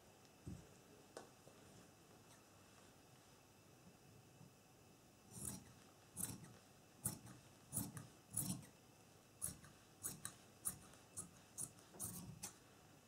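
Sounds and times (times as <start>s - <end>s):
shears snipping fabric: 5.3s - 8.7s, 9.4s - 12.6s.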